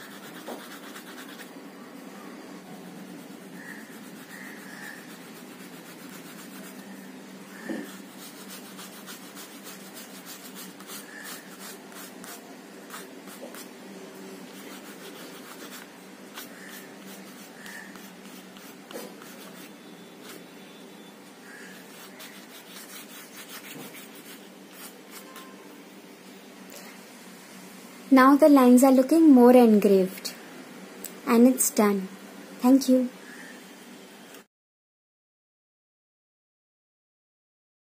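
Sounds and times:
crayon scratching on paper: 0.0s - 1.5s, 2.9s - 6.9s, 7.5s - 13.7s, 14.5s - 20.4s, 21.5s - 25.5s.

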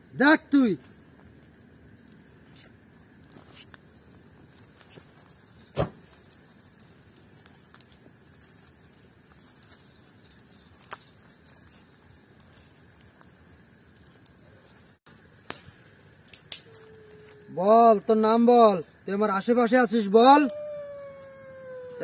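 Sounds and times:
steady low hiss: 0.0s - 20.3s
faint clicks and rustles: 2.5s - 17.5s.

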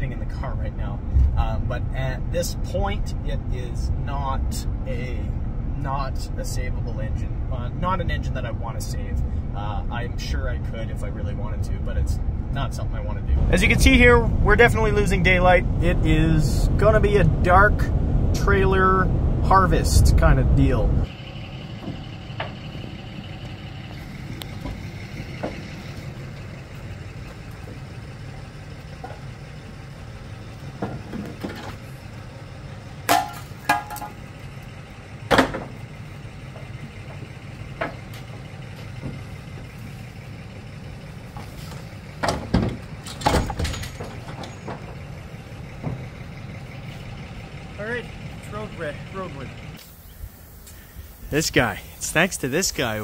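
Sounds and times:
vehicle engine idling: 0.0s - 53.0s
metallic knocks and clanks: 33.1s - 34.2s, 42.2s - 45.1s.

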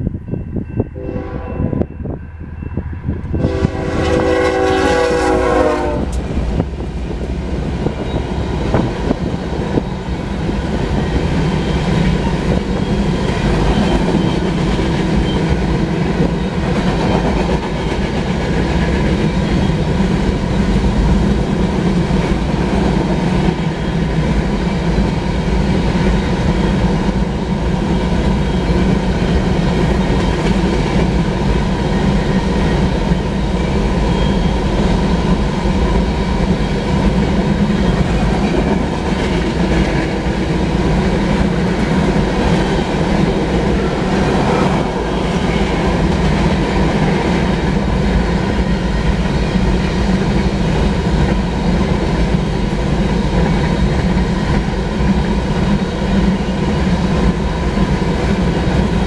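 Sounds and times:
train cars rumbling: 0.0s - 59.0s
locomotive horn blast: 1.0s - 1.9s, 3.4s - 6.2s.

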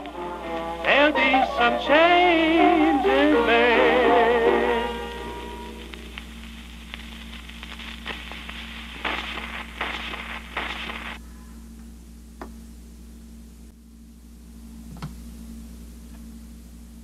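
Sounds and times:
record crackle and surface noise: 0.0s - 12.7s
low hum: 0.0s - 17.0s
record swish: 5.5s - 11.2s.

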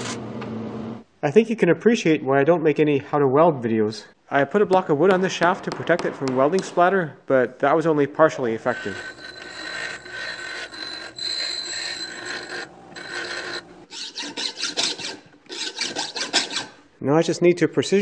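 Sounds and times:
bench grinder grinding steel: 8.6s - 16.8s
hand file rasping on steel: 8.6s - 16.8s.

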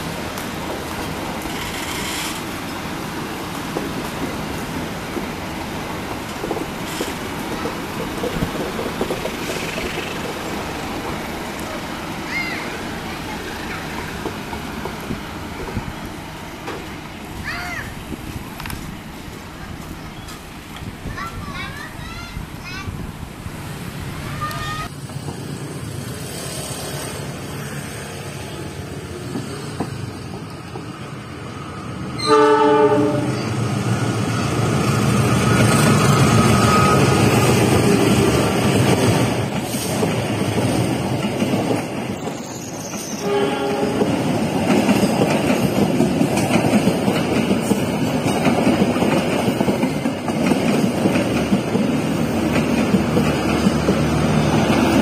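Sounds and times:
train wheels rumbling and clattering: 0.0s - 32.3s, 32.9s - 55.0s
train horn blast: 32.2s - 33.5s, 43.2s - 44.1s.

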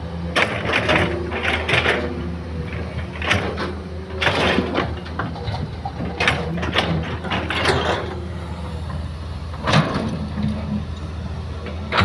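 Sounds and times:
excavator running: 0.0s - 12.0s
bucket clanking and rattling: 3.1s - 8.2s.

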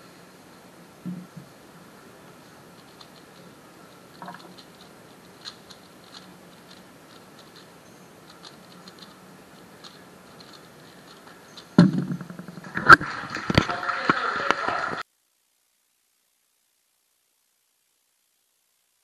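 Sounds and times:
plastic puzzle cube clicks: 2.8s - 12.5s
cube slapped down on timer: 11.8s - 13.0s.

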